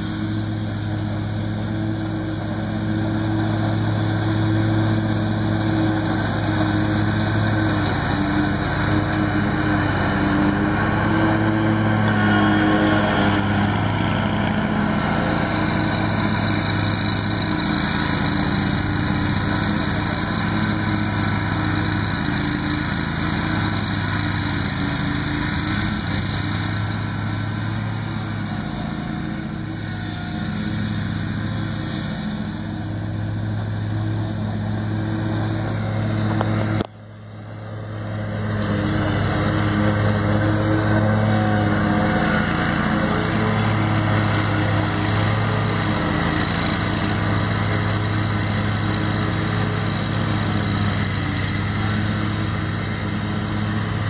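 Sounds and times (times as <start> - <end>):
riding mower engine hum: 0.0 - 54.0.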